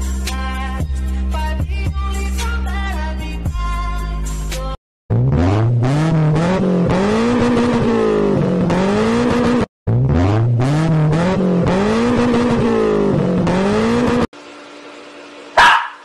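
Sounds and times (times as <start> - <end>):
car engine accelerating hard: 5.1 - 14.3.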